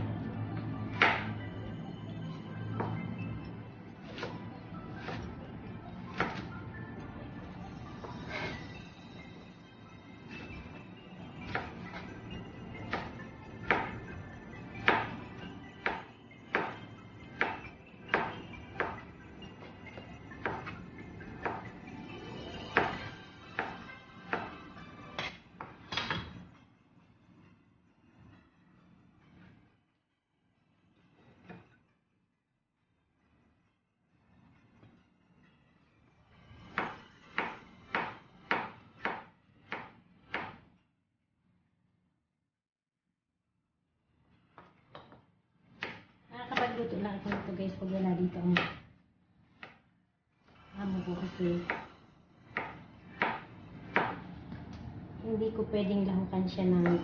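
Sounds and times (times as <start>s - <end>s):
quiet background music: 0.0s - 41.0s, 44.3s - 57.0s
knife chopping on cutting board: 0.9s - 1.3s, 4.0s - 4.4s, 5.0s - 5.3s, 6.1s - 6.5s, 12.9s - 14.0s, 14.8s - 15.2s, 15.8s - 16.8s, 17.4s - 19.0s, 20.4s - 20.7s, 21.4s - 21.7s, 22.7s - 24.6s, 36.7s - 40.7s, 45.8s - 47.5s, 48.5s - 48.8s, 51.6s - 51.9s, 52.5s - 54.3s.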